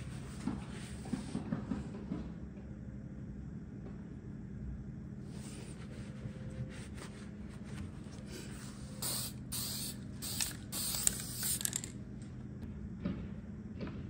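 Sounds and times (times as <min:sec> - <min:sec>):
aerosol spray can hissing: 0:09.0 - 0:11.9.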